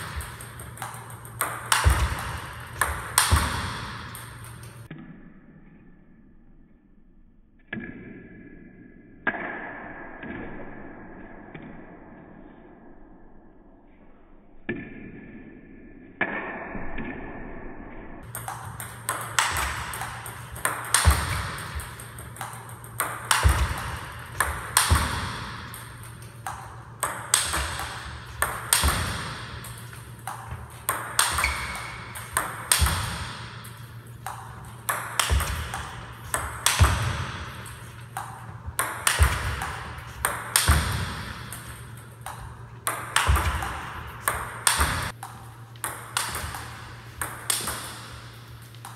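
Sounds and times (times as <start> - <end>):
hard ping pong smash: 0.0 - 4.7, 18.2 - 45.2
ping pong ball clicks: 0.0 - 4.9, 18.2 - 48.9.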